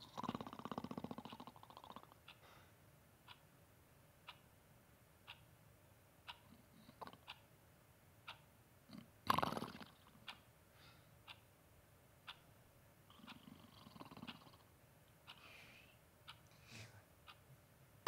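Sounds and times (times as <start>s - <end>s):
clock ticking: 3.2s - 3.4s, 4.2s - 4.5s, 5.2s - 5.5s, 6.2s - 6.4s, 8.2s - 8.5s, 10.2s - 10.5s, 11.2s - 11.5s, 12.2s - 12.4s, 16.2s - 16.5s
loud snort: 8.9s - 9.9s.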